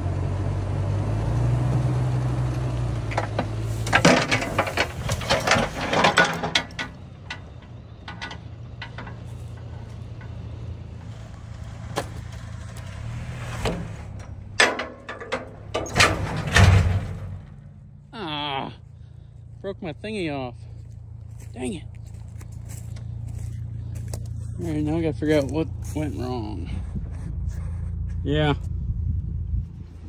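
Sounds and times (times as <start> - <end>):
vehicle engine running: 0.0 - 30.0
metal clanks and rattles: 3.0 - 17.9.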